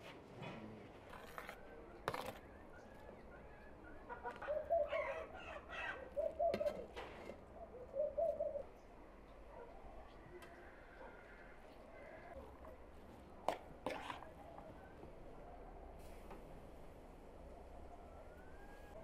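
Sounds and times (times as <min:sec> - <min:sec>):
bird calling: 0:01.5 - 0:08.9.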